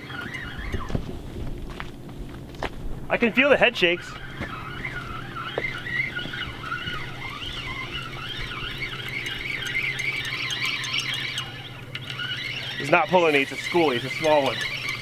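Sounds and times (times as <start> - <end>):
fishing reel gears whining: 0.0 - 1.0, 3.2 - 15.0
steady low hum: 0.0 - 15.0.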